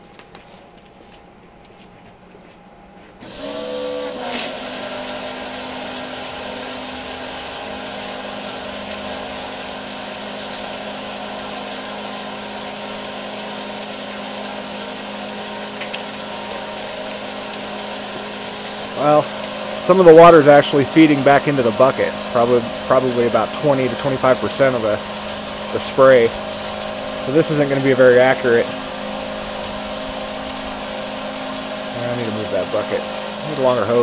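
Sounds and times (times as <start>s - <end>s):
electric water pump humming: 3.0s - 34.0s
spray nozzle hissing: 3.2s - 14.8s.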